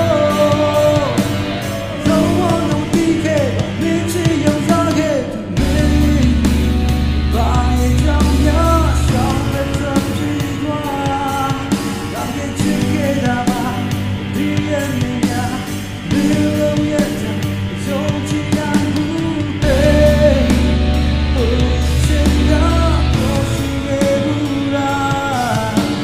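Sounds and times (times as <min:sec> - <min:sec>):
deep bass: 0:00.0 - 0:26.0
man singing: 0:00.0 - 0:26.0
programmed backing track: 0:00.0 - 0:26.0.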